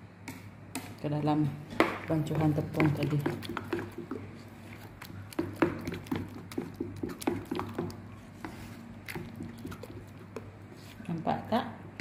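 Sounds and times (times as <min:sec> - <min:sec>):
wet batter squelching: 0:02.0 - 0:11.3.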